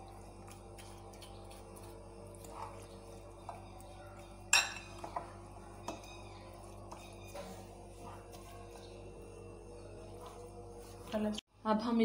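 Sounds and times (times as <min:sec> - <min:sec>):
low hum: 0:00.0 - 0:11.8
fork tapping glass bowl: 0:04.5 - 0:06.2.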